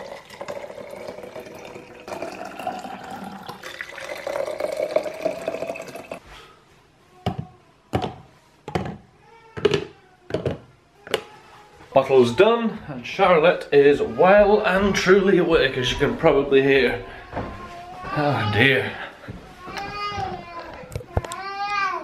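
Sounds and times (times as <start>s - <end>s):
water pouring into bottle: 0.0s - 6.2s.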